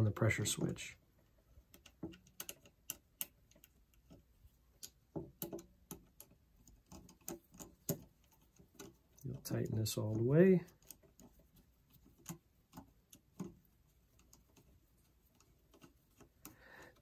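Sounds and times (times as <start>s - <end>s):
small clicks and taps: 0.5s - 17.0s.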